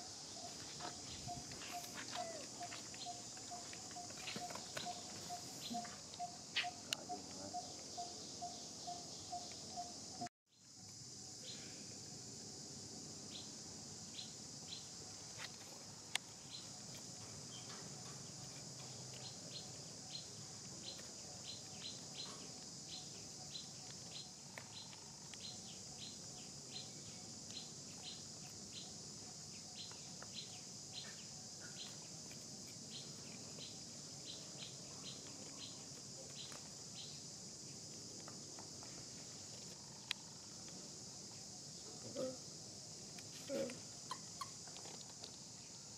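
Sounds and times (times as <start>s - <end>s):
high insect drone: 0.0s - 45.9s.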